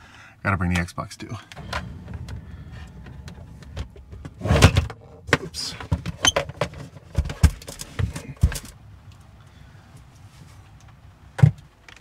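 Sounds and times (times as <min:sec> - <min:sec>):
heavy thump: 0:01.5 - 0:06.2
knocks and clatter of gear: 0:01.5 - 0:08.8.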